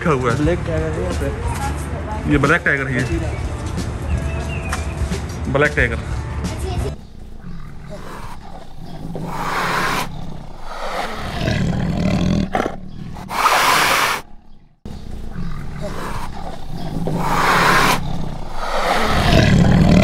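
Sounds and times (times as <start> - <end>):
big cat roaring and snarling: 7.2 - 20.0.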